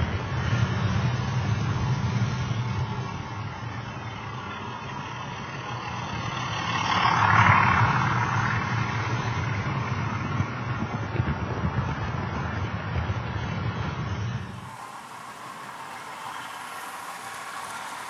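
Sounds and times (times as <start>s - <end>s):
wheels rattling on track: 14.2s - 18.0s
model train motor hum: 14.4s - 18.0s.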